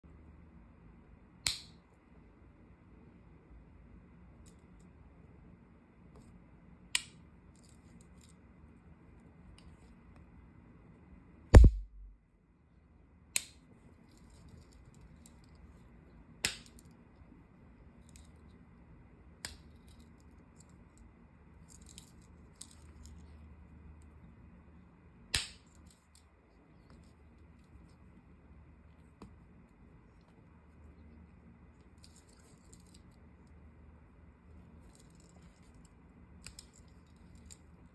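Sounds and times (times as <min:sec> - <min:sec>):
low thump: 0:11.6 - 0:12.2.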